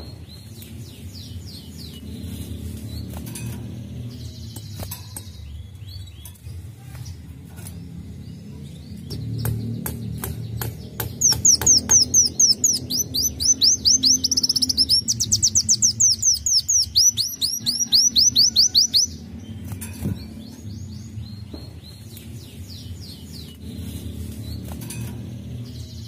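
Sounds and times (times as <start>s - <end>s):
sunbird singing: 0.0s - 26.0s.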